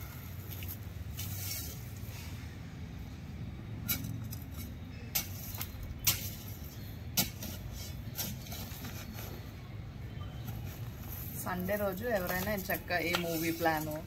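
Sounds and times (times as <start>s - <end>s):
stones dropping on concrete: 12.1s - 14.0s.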